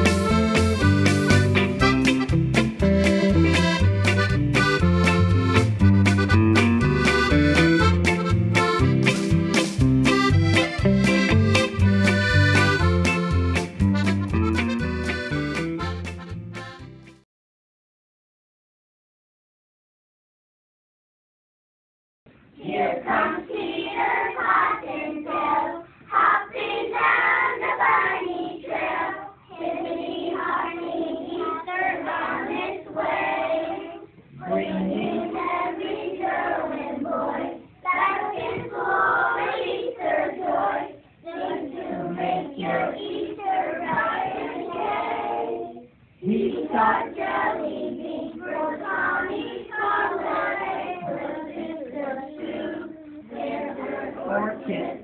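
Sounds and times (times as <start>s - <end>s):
young children singing: 22.6s - 55.0s.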